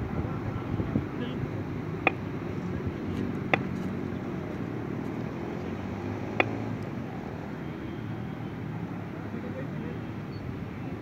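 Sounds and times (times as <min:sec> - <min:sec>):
cricket bat striking ball: 0:02.0 - 0:02.3, 0:03.4 - 0:03.8, 0:06.2 - 0:06.6.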